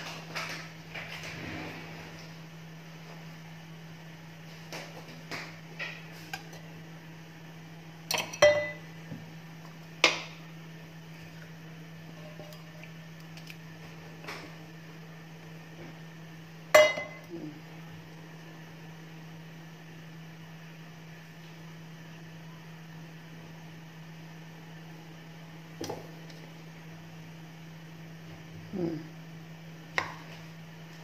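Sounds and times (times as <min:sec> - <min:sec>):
steady low hum: 0:00.0 - 0:31.0
utensils clinking on metal pan: 0:08.1 - 0:08.8.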